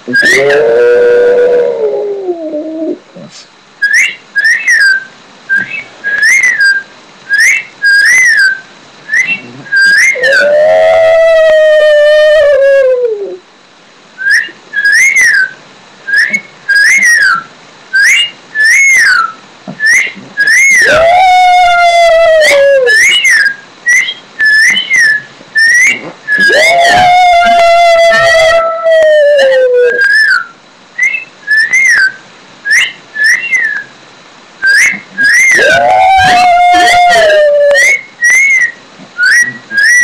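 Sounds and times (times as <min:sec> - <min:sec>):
dog howling: 0:00.1 - 0:03.0, 0:09.7 - 0:13.4, 0:20.0 - 0:23.4, 0:25.8 - 0:30.4, 0:34.7 - 0:38.0
short high whistles: 0:03.8 - 0:10.2, 0:37.2 - 0:40.0.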